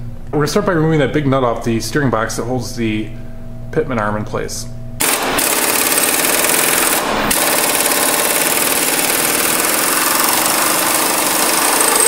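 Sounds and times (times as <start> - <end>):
impact wrench hammering: 5.0 - 12.0.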